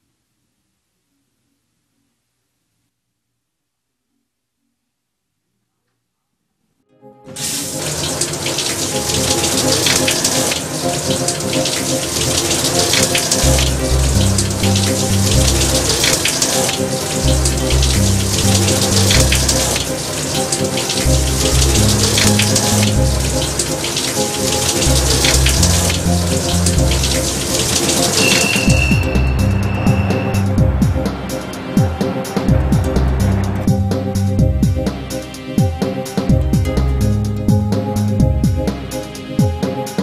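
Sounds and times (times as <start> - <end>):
background music with held notes: 6.8 - 40.0
shower spray running: 7.4 - 36.2
deep stepping bass line: 13.4 - 20.1, 21.0 - 24.2, 24.8 - 27.8, 28.7 - 39.5.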